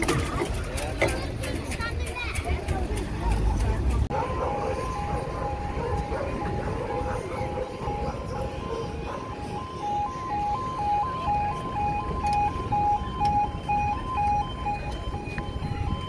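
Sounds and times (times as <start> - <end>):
level crossing two-tone alarm: 4.4 - 16.0.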